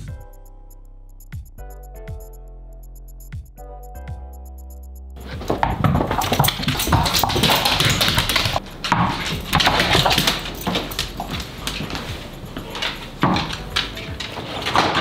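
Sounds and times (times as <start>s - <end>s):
dog claws clicking on wooden floor: 5.3s - 15.0s.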